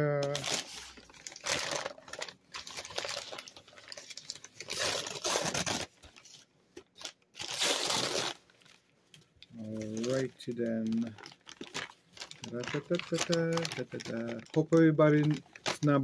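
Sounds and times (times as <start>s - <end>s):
paper bag crumpling: 0.2s - 6.2s, 9.6s - 16.0s.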